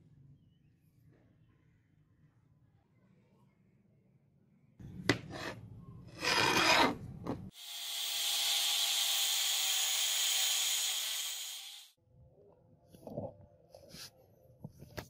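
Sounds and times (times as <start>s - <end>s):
angle grinder grinding metal: 7.6s - 11.9s.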